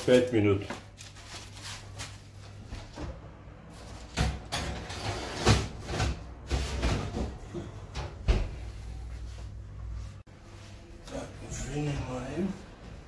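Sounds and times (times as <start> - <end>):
metal baking tray clattering: 4.1 - 5.8.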